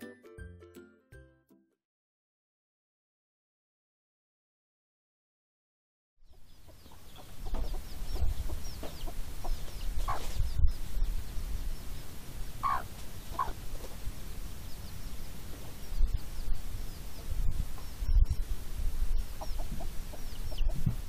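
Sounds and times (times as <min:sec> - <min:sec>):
chick peeping: 0:06.3 - 0:21.0
chickens clucking: 0:06.3 - 0:21.0.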